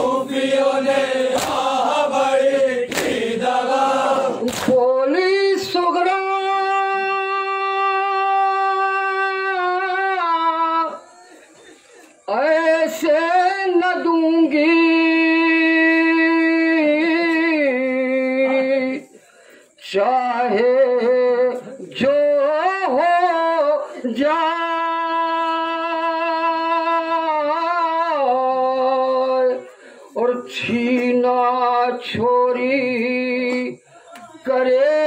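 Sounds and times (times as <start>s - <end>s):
men chanting: 0.0s - 5.7s
breaths between phrases: 19.1s - 19.8s, 29.6s - 30.2s.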